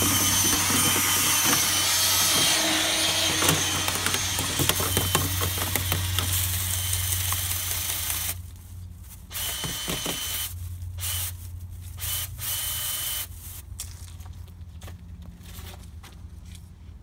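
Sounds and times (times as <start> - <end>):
power drill spinning: 0.0 - 8.4, 9.3 - 13.3.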